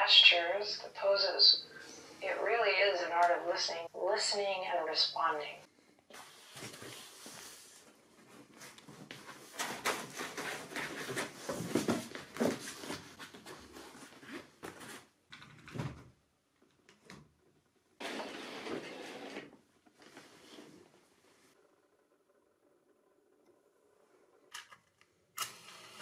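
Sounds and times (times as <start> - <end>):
rustling and shuffling: 6.1 - 15.2.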